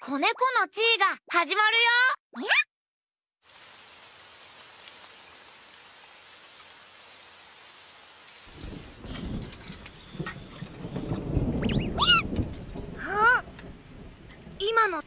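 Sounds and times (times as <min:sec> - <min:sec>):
steady rain falling: 0:03.4 - 0:15.0
low rumble of thunder: 0:08.5 - 0:15.0.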